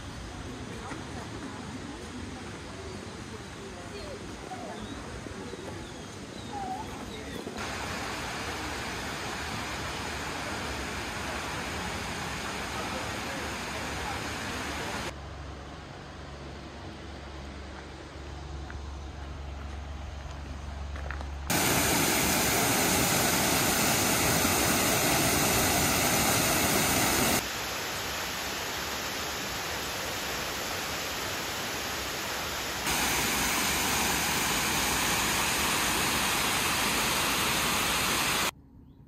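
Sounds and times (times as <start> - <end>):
waterfall rushing: 7.6 - 15.1, 21.5 - 38.5.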